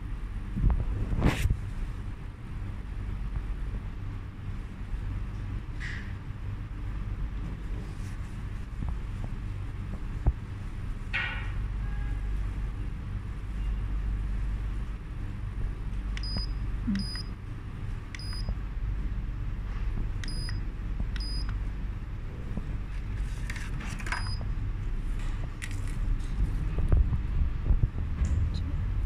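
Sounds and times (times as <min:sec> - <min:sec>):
steady low hum: 0:00.0 - 0:29.0
short high electronic beeps: 0:16.2 - 0:17.3.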